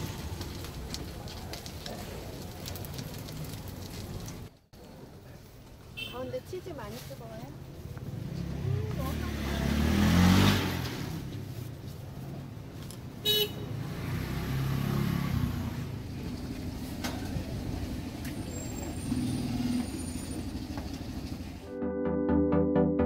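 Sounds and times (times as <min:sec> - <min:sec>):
street traffic rumble: 0:00.0 - 0:21.7
vehicle passing loudly: 0:08.1 - 0:11.6, 0:13.7 - 0:16.1.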